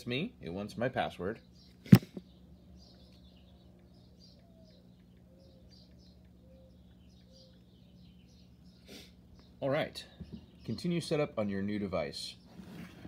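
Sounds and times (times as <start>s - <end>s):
steady low hum: 0.0s - 13.0s
high bird chirps: 1.5s - 10.9s.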